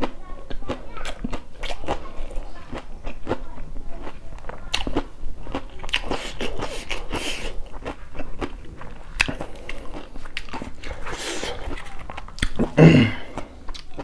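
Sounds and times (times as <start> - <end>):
crunchy chewing: 0.0 - 14.0.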